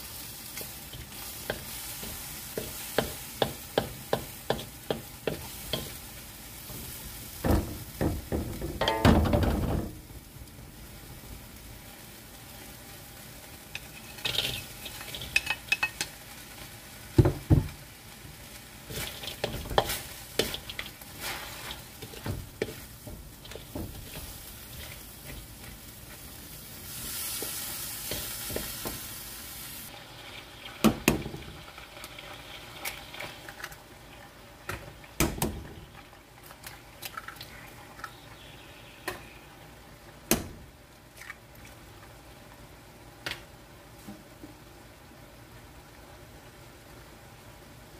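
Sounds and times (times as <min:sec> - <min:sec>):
spatula scraping wok: 0:00.0 - 0:07.4, 0:13.7 - 0:16.2, 0:18.8 - 0:29.3
food sizzling in a wok: 0:00.0 - 0:47.9
spatula knocking against wok: 0:02.6 - 0:06.0.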